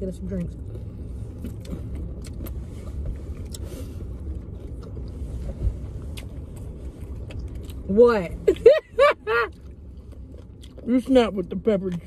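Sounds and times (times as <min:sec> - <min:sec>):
car engine running inside cabin: 0:00.0 - 0:12.0.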